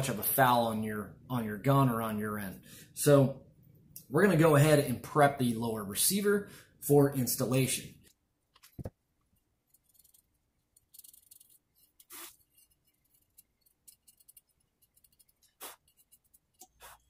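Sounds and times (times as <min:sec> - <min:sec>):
cotton rubbing on metal: 0:09.6 - 0:17.0.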